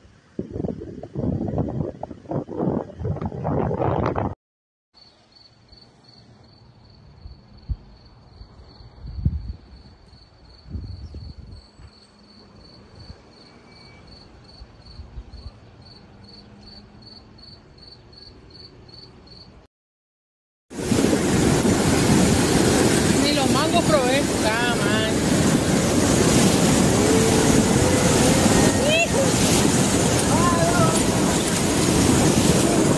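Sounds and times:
cricket chirping: 5.0 - 19.6.

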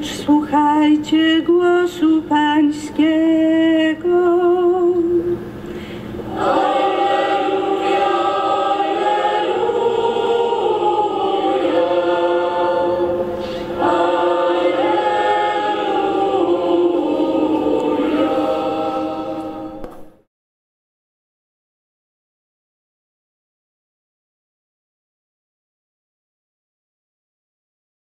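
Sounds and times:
choir singing slow chant: 6.2 - 20.1.

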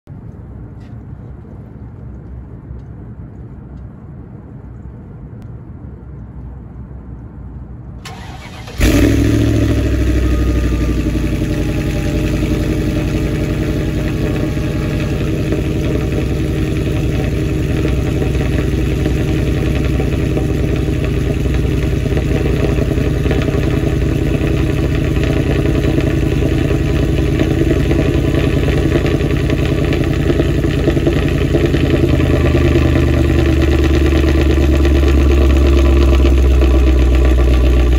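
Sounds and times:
car engine starting and idling: 8.0 - 37.9.

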